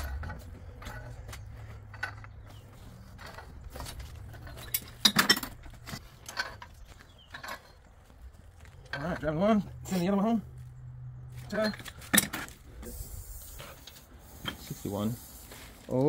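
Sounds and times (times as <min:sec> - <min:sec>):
metal clatter: 0:00.0 - 0:07.9
metal pipe clinks and scrapes: 0:00.0 - 0:07.9, 0:11.3 - 0:14.7.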